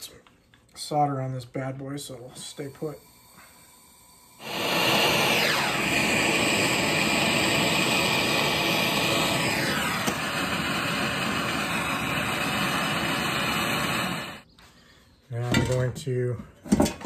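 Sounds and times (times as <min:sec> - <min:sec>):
gas torch flame hissing: 0:02.3 - 0:14.4.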